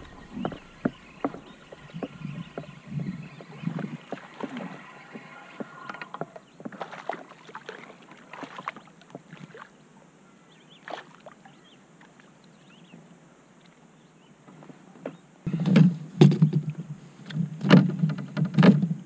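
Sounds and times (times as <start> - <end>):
fish splashing at surface: 3.4 - 9.7.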